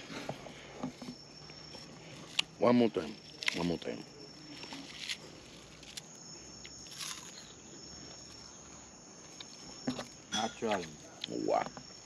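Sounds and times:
night insects trilling: 0.0s - 12.0s
crunchy chips being chewed: 4.5s - 7.5s.

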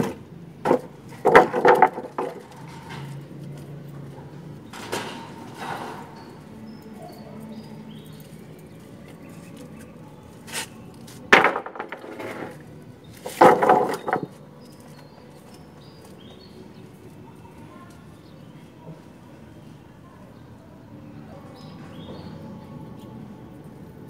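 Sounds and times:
wooden planks clattering on concrete: 0.0s - 3.7s, 4.7s - 6.2s, 10.5s - 15.5s.

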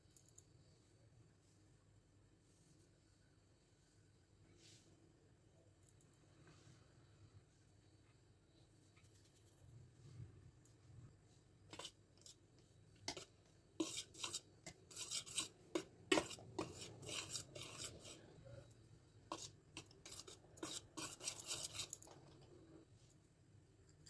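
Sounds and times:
whisk scraping a glass bowl: 13.0s - 18.3s, 19.3s - 22.4s.

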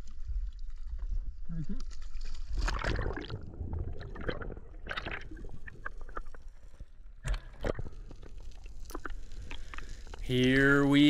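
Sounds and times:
underwater bubbles and sloshing: 0.0s - 11.0s.

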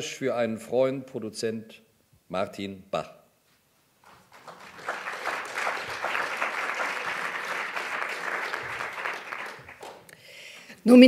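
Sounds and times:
audience applauding: 4.1s - 10.2s.

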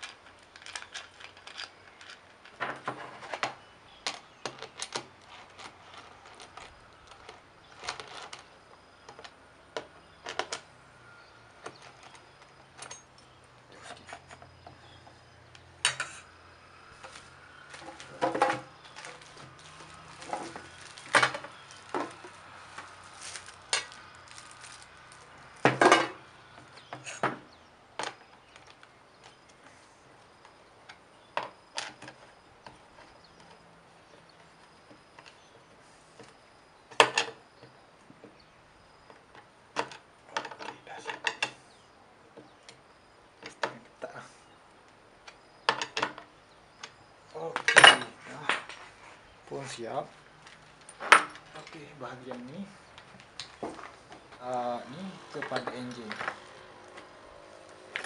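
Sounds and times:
clinks of metal and plastic parts: 0.0s - 10.7s, 11.6s - 16.3s, 17.0s - 29.6s, 39.1s - 41.6s, 45.3s - 48.8s, 50.4s - 51.8s, 55.3s - 57.0s, 57.8s - 58.0s
tools set down on wooden table: 17.8s - 18.7s, 25.6s - 26.2s, 47.6s - 48.7s.

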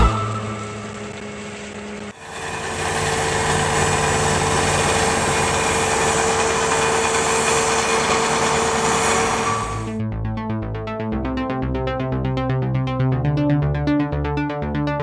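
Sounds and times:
tractor engine and snow blower: 0.0s - 10.0s.

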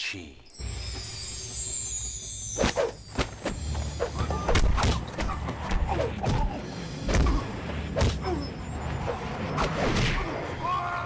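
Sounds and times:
fighters shouting and grunting: 4.0s - 11.0s
punch and block hits: 8.0s - 8.2s.

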